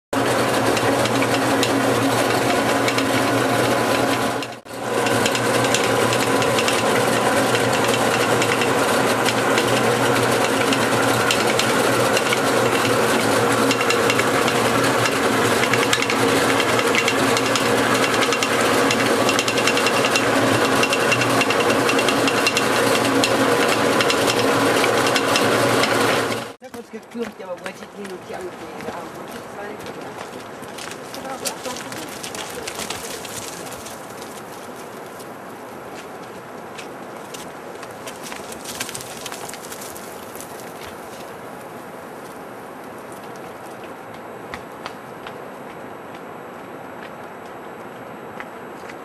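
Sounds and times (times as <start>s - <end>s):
corn mill grinding rattle: 0.2s - 26.6s, 30.8s - 34.9s
motor hum: 0.2s - 49.0s.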